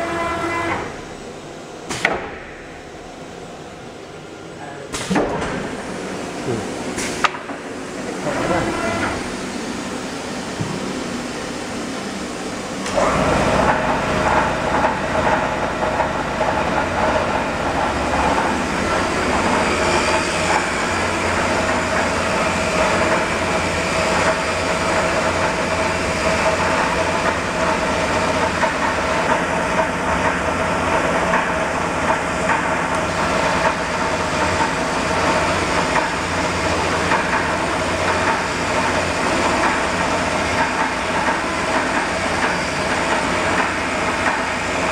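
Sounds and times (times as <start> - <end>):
machine noise with whine: 0.0 - 44.9.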